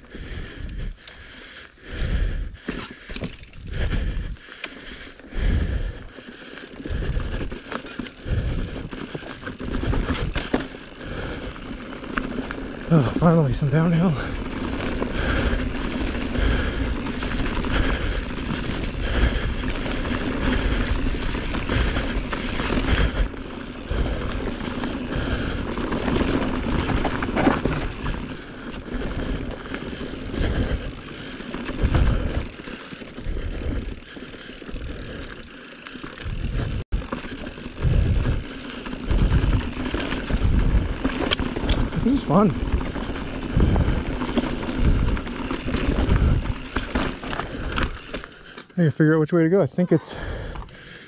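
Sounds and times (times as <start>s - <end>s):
bike tyres rumbling on dirt: 0.0s - 48.7s
wind buffeting microphone: 36.2s - 48.0s.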